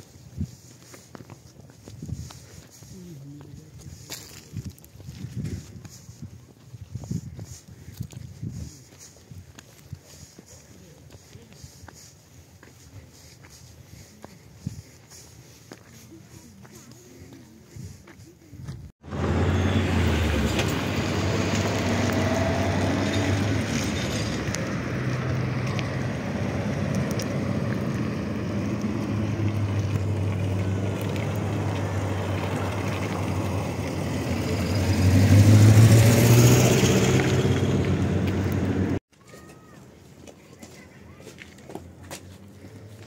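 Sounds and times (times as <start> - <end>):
vehicle engine droning: 19.0 - 39.0.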